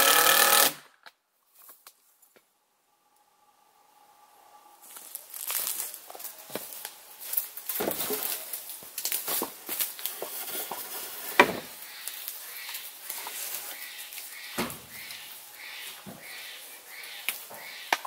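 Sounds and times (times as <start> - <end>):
light rustling and crackling: 4.8 - 14.3.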